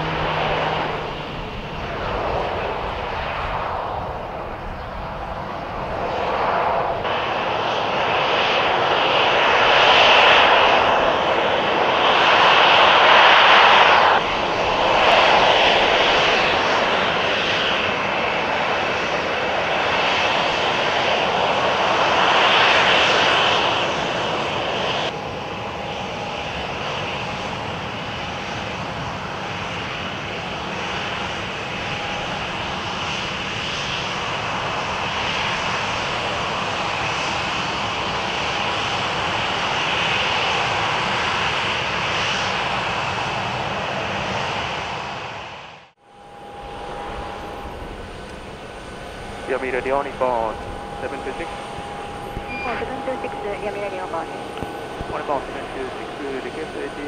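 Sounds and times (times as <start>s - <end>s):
jet engines rushing: 0.0s - 57.0s
thin high whine: 46.0s - 57.0s.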